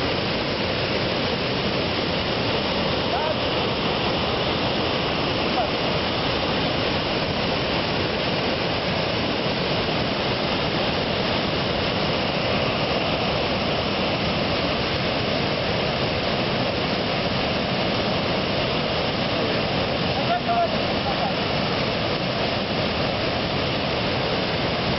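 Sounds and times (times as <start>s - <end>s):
waterfall rushing: 0.0s - 24.9s.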